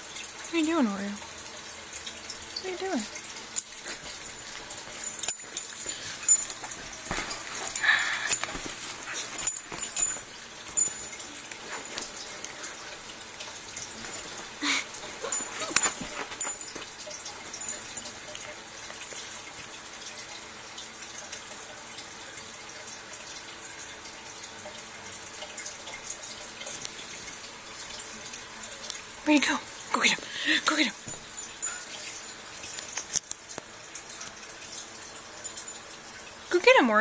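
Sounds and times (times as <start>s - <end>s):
faint steady background noise: 0.0s - 37.0s
dogs scuffling in play: 3.9s - 12.8s, 13.9s - 18.0s.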